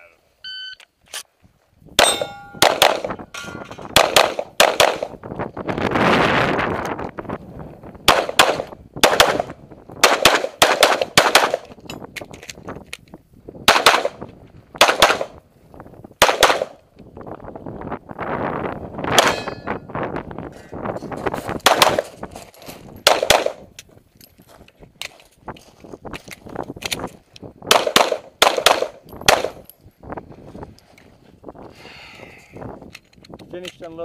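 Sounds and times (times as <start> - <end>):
pistol shots: 2.0 - 3.2, 3.9 - 5.2, 8.1 - 11.7, 13.7 - 14.2, 14.8 - 15.4, 16.2 - 16.8, 19.1 - 19.6, 21.6 - 22.1, 23.0 - 23.6, 27.7 - 29.6.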